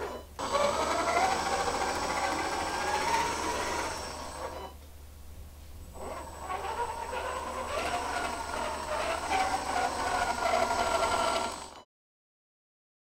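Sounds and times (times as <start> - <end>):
electric motor whine: 0.0 - 4.6, 6.0 - 11.8.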